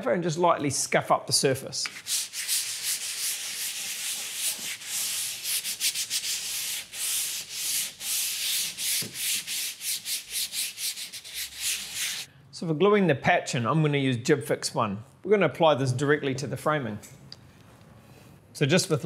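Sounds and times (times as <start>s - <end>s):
sandpaper scratching plasterboard: 1.8s - 12.3s.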